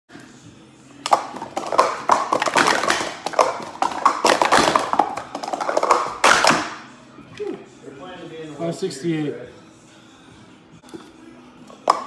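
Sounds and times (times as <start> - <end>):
plastic cups clacking: 1.0 - 6.8, 11.8 - 12.0.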